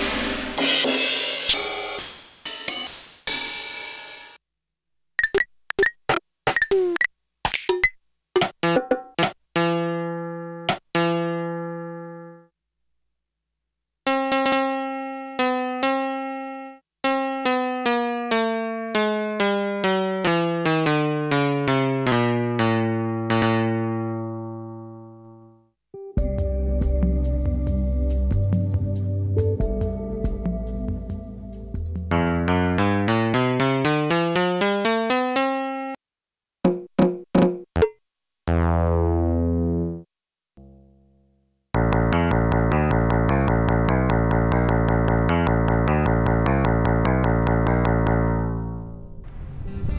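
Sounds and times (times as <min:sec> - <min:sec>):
drum machine hits: 0:00.0 - 0:03.9, 0:36.6 - 0:38.0
drum machine piano notes: 0:31.7 - 0:35.2, 0:41.8 - 0:48.7.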